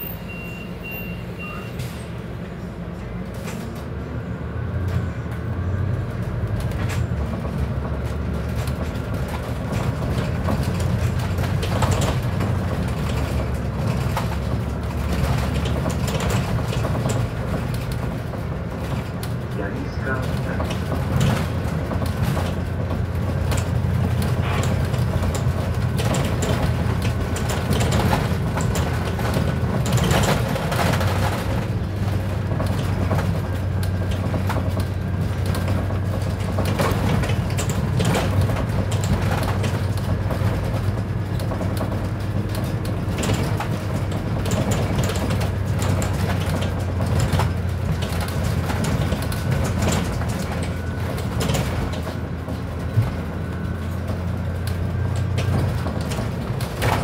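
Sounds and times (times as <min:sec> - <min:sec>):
bus body rattling: 0:00.0 - 0:57.0
bus engine droning: 0:00.0 - 0:57.0.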